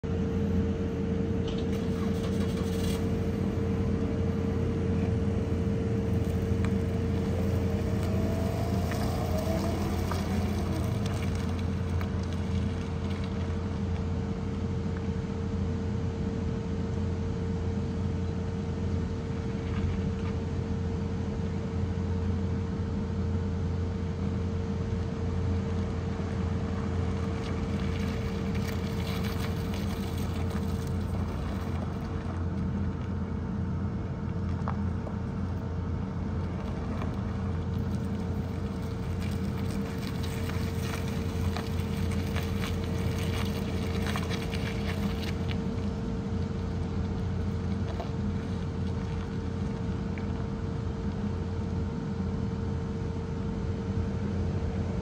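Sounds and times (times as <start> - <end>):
mechanical drone with hum: 0.0 - 55.0
faint engine note: 1.3 - 14.6.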